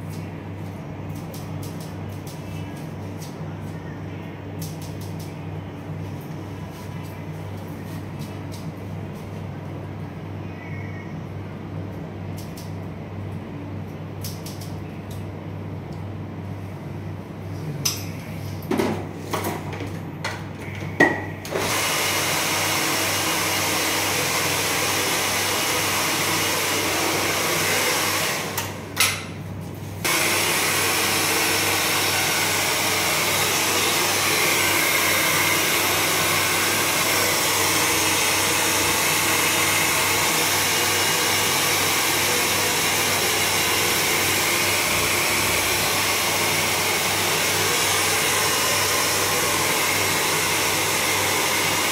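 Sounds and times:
hair dryer blowing: 0:21.5 - 0:29.0, 0:30.0 - 0:51.9.

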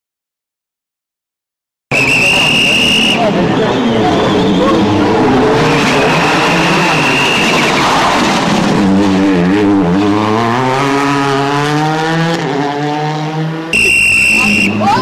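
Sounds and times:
rally car engine accelerating: 0:03.2 - 0:15.0.

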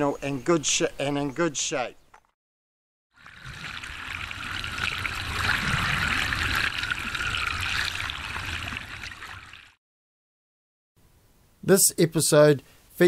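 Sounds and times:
wave breaking and churning: 0:03.2 - 0:09.8.

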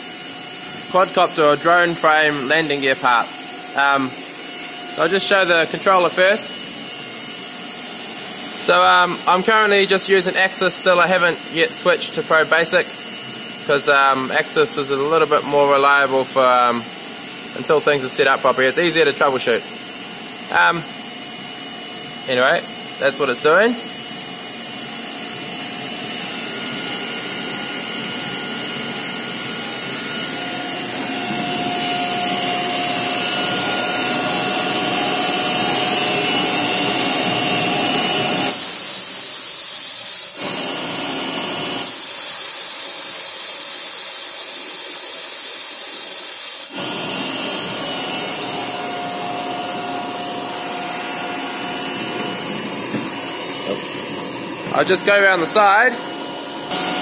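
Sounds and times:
loud high hiss: 0:38.4 - 0:40.4, 0:41.9 - 0:46.8
milling machine cutting: 0:56.7 - 0:57.0.

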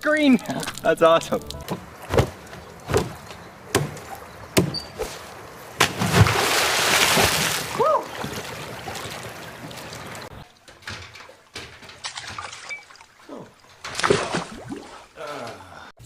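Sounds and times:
water sloshing: 0:00.3 - 0:15.5
diving board thumps: 0:01.6 - 0:12.8, 0:13.8 - 0:14.9
big splash into pool: 0:04.6 - 0:10.3, 0:14.0 - 0:14.9.

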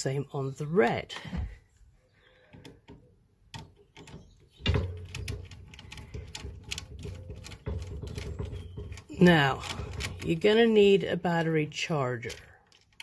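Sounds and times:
screwdriver clicking and scraping metal: 0:12.2 - 0:13.0.

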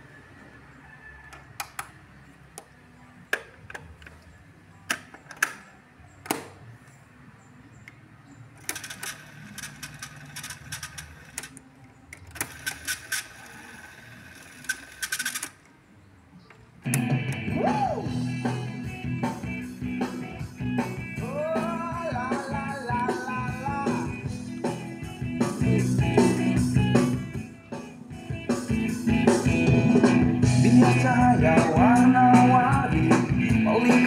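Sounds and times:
music from cassette: 0:16.8 - 0:34.0.

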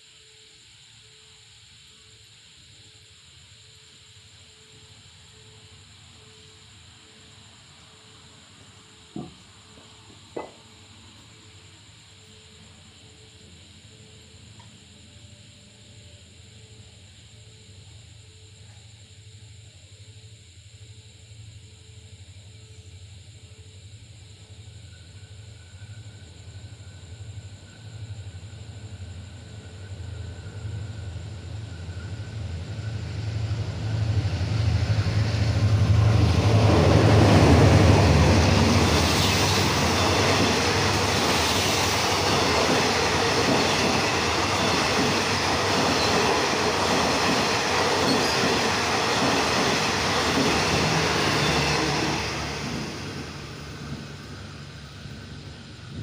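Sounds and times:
train wheels on rails: 0:08.5 - 0:11.2, 0:28.0 - 0:56.0
locomotive engine drone: 0:25.3 - 0:56.0.

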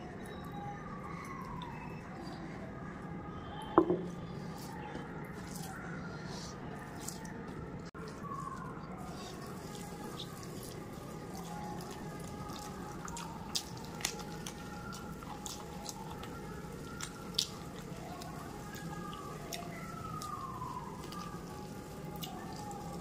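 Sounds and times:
fingers squishing food: 0:04.3 - 0:23.0
chewing and mouth smacks: 0:06.8 - 0:22.9.

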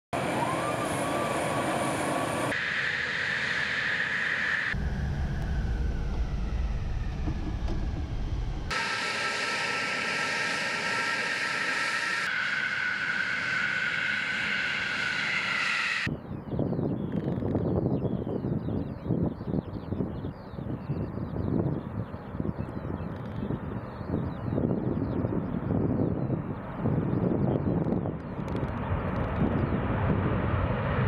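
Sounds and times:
jet engines whining: 0:00.2 - 0:16.1
deep engine rumble in cockpit: 0:04.7 - 0:11.0.

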